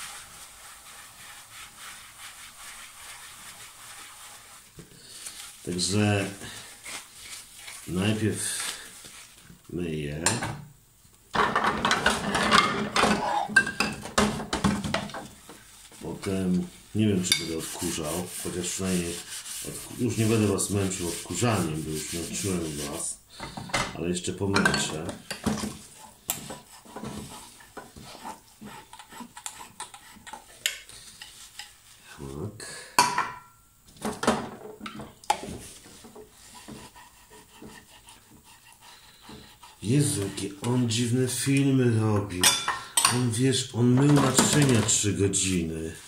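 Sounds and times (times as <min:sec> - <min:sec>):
sponge scrubbing dishes: 0:00.0 - 0:09.8, 0:11.4 - 0:23.2, 0:24.3 - 0:32.3, 0:34.5 - 0:46.0
dishes knocking and clinking: 0:11.3 - 0:15.4, 0:23.4 - 0:28.0, 0:33.0 - 0:35.6, 0:42.4 - 0:43.3, 0:44.0 - 0:45.0.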